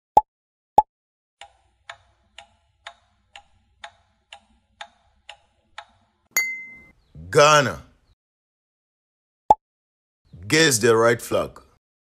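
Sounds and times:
clock-like ticking: 0:01.4 - 0:06.2
short ringing chime: 0:06.4 - 0:06.9.

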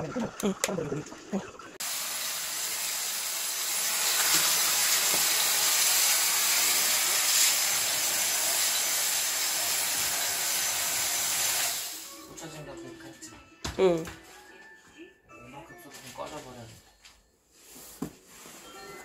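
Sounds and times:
cordless vacuum running: 0:01.8 - 0:12.1.

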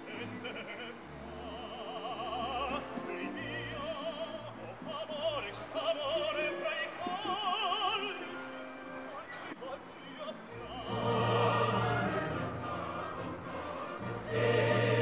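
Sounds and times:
operatic singing with vibrato: 0:00.0 - 0:15.0
orchestral accompaniment: 0:06.2 - 0:09.6, 0:10.5 - 0:15.0.

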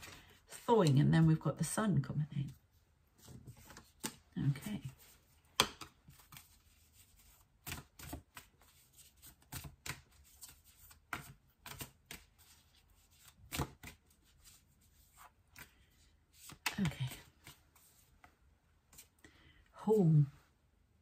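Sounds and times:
cards snapping and tapping: 0:05.5 - 0:06.4, 0:09.2 - 0:12.3.

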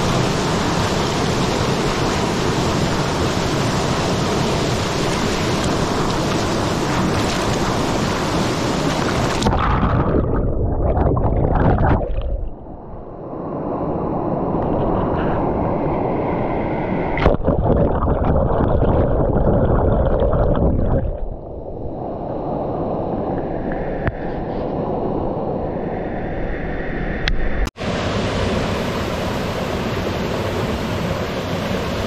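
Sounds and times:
stream water rushing and gurgling: 0:00.0 - 0:13.1, 0:27.8 - 0:32.0.

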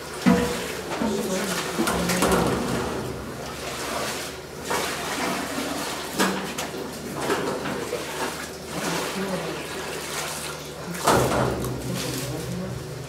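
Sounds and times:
wet sloshing and pouring: 0:00.0 - 0:13.0
workers' voices: 0:00.3 - 0:03.0, 0:07.2 - 0:13.0.

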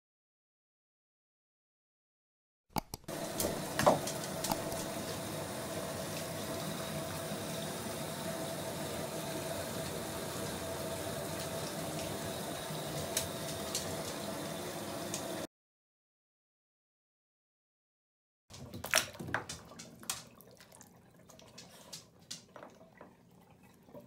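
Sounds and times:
water running into bathtub: 0:03.1 - 0:15.5, 0:18.5 - 0:24.0.

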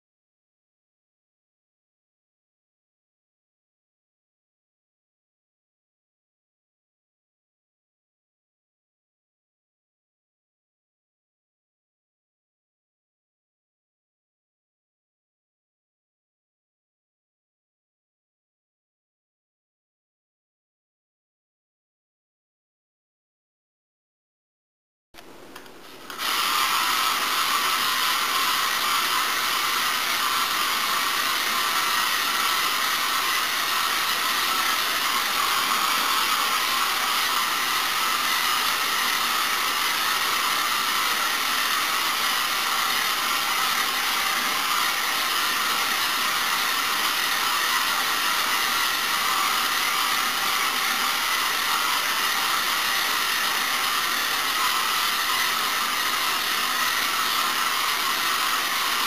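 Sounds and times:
toy car electric motor whine: 0:26.1 - 0:59.0.

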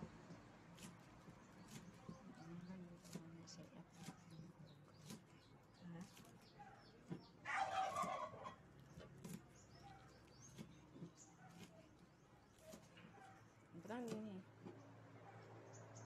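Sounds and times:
chicken calling: 0:07.4 - 0:08.6.

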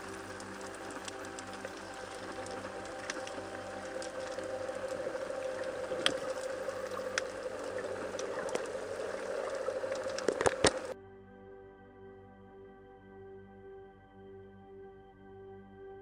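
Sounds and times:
underwater hum: 0:00.0 - 0:11.0
soft ambient music: 0:00.0 - 0:16.0.

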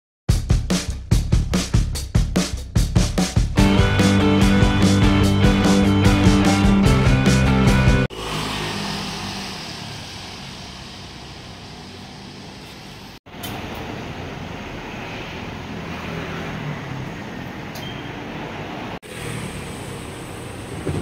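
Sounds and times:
music: 0:00.3 - 0:08.1
street traffic hum: 0:07.2 - 0:21.0
vehicle passing: 0:07.8 - 0:13.2, 0:14.2 - 0:21.0.

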